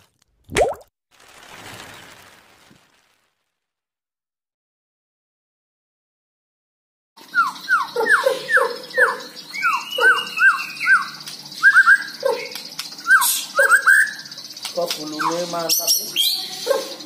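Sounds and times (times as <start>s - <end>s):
bird singing whistled notes: 7.2s - 17.0s.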